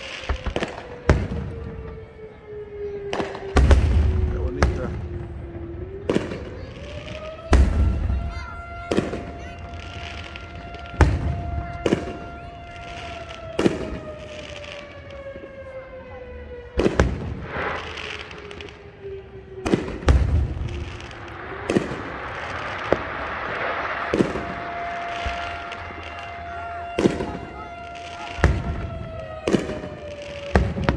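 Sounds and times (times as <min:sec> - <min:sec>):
fireworks booming with echo: 0:00.0 - 0:30.9
hissing crackle: 0:17.2 - 0:19.0, 0:19.7 - 0:28.9.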